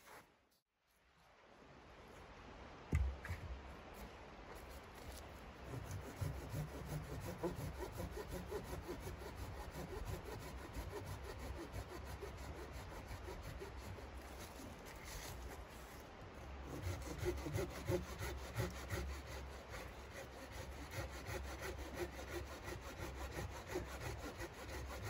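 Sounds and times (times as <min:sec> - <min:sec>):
hand saw cutting branch: 0:05.1 - 0:16.0, 0:16.6 - 0:25.0.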